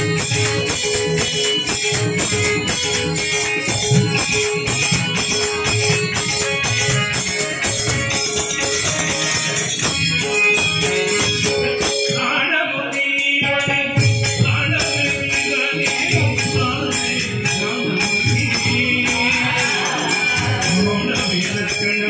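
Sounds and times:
jingling hand percussion: 0:00.0 - 0:22.0
group singing devotional song: 0:18.9 - 0:21.0.

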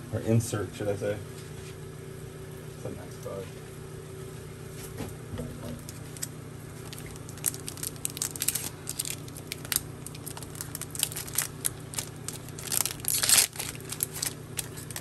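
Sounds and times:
low room hum: 0:00.0 - 0:15.0
foil wrapper crinkling: 0:05.8 - 0:15.0.

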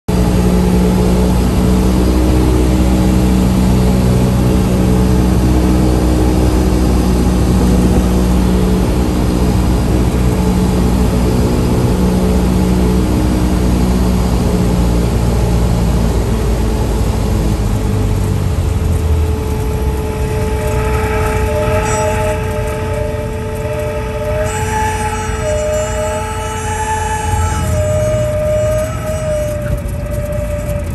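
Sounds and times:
airplane engine and propeller: 0:00.1 - 0:30.9
steady high warning horn: 0:00.1 - 0:30.9
wind noise: 0:00.1 - 0:30.9.

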